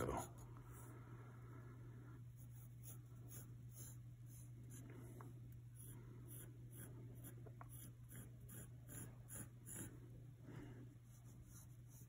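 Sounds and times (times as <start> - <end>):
steady low hum: 0.0 - 12.0
pencil sketching on paper: 2.4 - 4.8, 5.8 - 10.1, 11.0 - 12.0.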